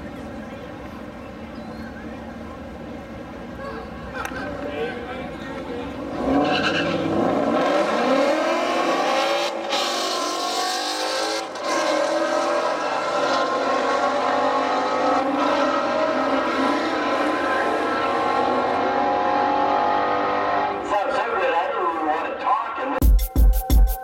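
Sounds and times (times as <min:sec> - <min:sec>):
car engines revving at full throttle: 0:00.0 - 0:21.1.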